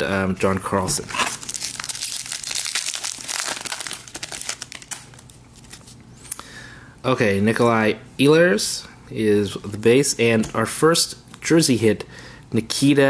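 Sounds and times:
foil wrapper crinkling: 1.1 - 5.9.

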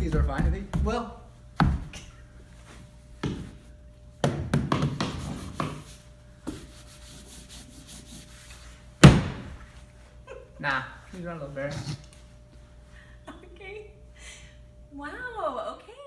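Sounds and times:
hand knocking on drywall: 0.0 - 1.0.

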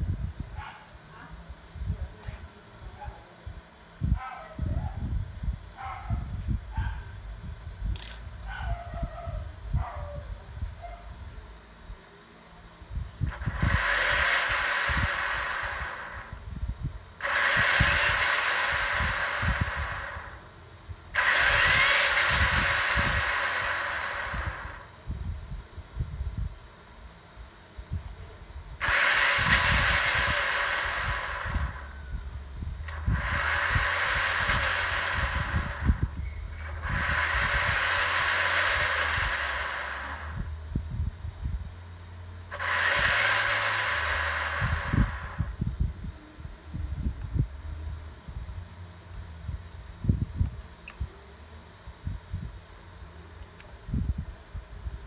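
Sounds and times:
electric motor whirring: 13.2 - 25.3, 28.7 - 41.1, 42.4 - 45.9.

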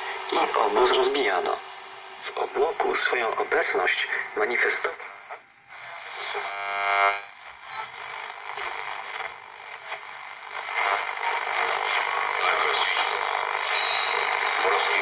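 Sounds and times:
radio static hiss: 0.0 - 15.0.

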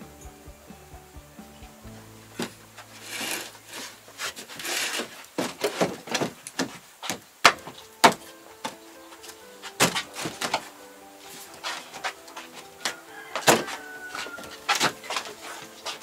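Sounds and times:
background music: 0.0 - 6.6, 7.4 - 16.0
wooden boards scraping: 2.3 - 16.0
wooden boards knocking: 2.4 - 10.7.

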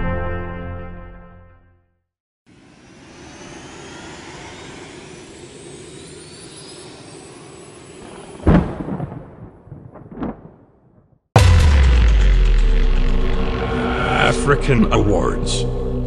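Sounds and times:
rushing whoosh with whistling: 2.5 - 8.8
heavy boom impact: 11.4 - 16.0.

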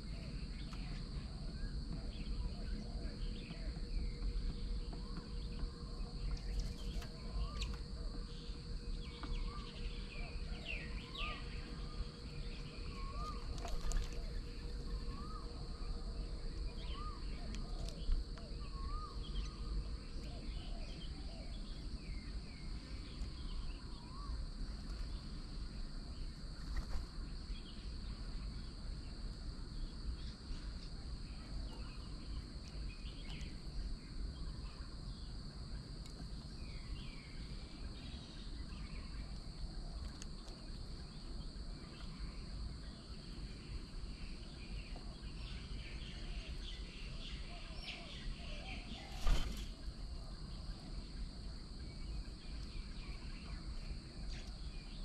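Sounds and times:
high-pitched insect drone: 0.0 - 25.2
small bird chirps: 0.0 - 25.4
low background rumble: 0.0 - 48.6.

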